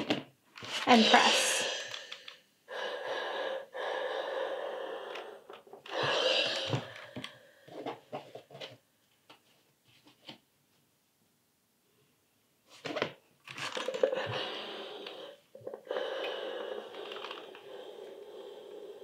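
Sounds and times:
steam iron hissing: 5.9 - 7.0.

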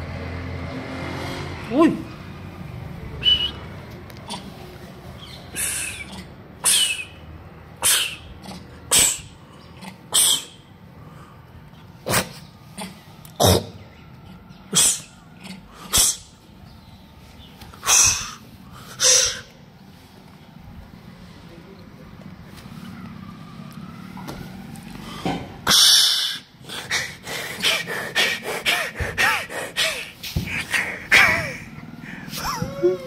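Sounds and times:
monkey harsh breathy huffs: 5.5 - 7.2, 7.8 - 9.4, 10.1 - 10.6, 17.8 - 19.6, 25.6 - 32.5.

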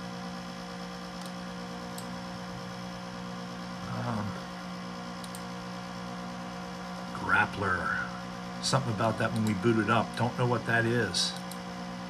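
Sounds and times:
computer cooling fan hum: 0.0 - 12.0
faint mouse clicks: 5.2 - 5.5, 9.3 - 9.6, 11.3 - 11.6.

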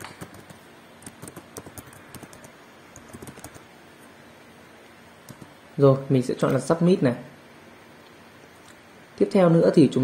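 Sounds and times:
computer keyboard keys clicking: 0.0 - 3.7, 5.3 - 5.5.

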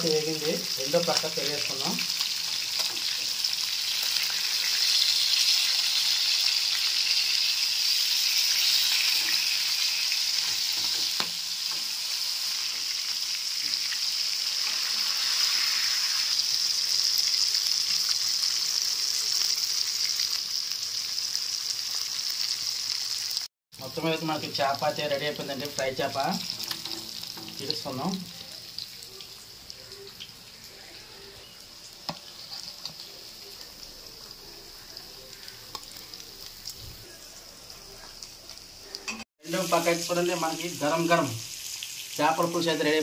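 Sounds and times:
fish sizzling in hot oil: 0.0 - 43.0
spatula turning food in pan: 0.1 - 20.2, 25.4 - 39.2.

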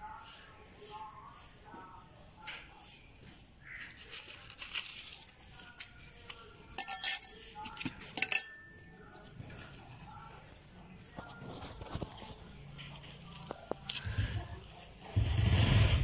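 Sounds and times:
hands raking dry pebbly soil: 2.9 - 8.1, 11.1 - 16.0.

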